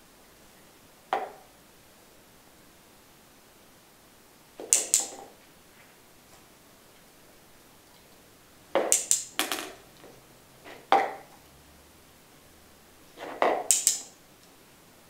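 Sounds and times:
sharp clicks and knocks: 4.6 - 5.3, 8.8 - 10.2, 13.2 - 14.2.

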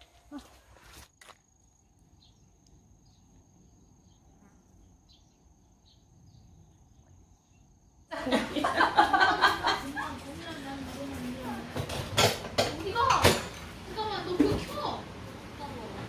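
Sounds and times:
cricket trilling: 0.2 - 8.9
voices talking: 8.1 - 11.9.

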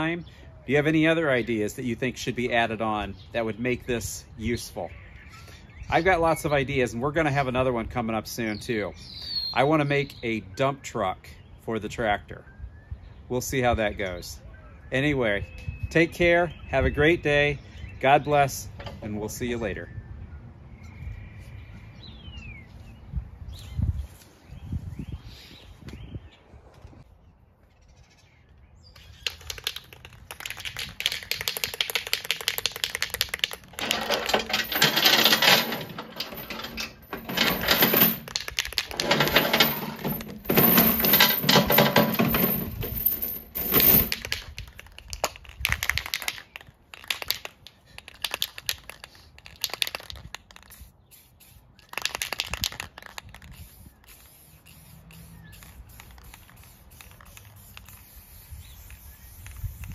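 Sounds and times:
spray can clicks: 29.1 - 33.8
aerosol spray can hissing: 53.0 - 59.9.

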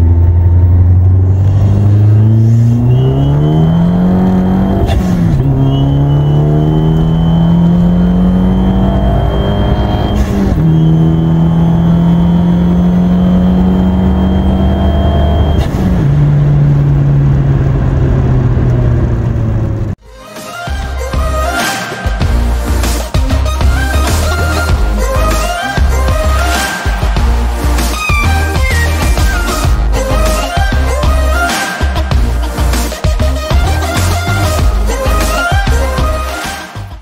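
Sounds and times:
car engine revving at full throttle: 0.0 - 20.0, 23.1 - 31.1
turbo whistle: 2.0 - 15.7.

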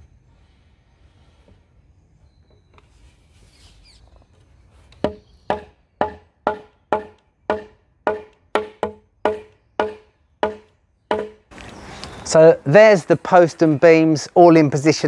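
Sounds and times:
hammer knocking on timber post: 5.0 - 11.4.

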